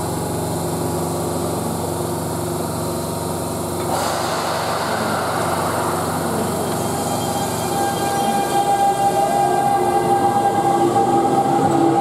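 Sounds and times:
electric train hum: 0.0s - 12.0s
rushing hiss: 3.8s - 9.4s.

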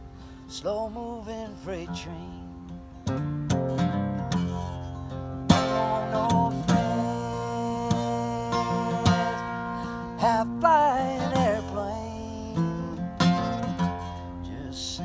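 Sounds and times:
acoustic guitar strumming: 0.0s - 15.0s
man singing: 0.5s - 2.6s, 5.5s - 15.0s.

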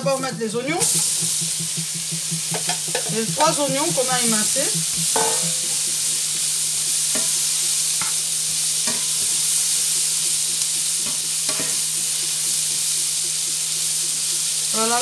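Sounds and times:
onions sizzling in a frying pan: 0.0s - 15.0s
spatula scraping and knocking a pan: 0.8s - 12.4s.

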